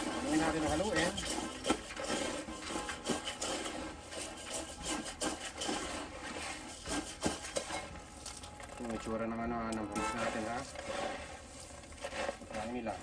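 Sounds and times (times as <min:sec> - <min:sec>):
tin can scraping in pan: 0:00.0 - 0:13.0
grains rustling and rattling: 0:05.1 - 0:13.0.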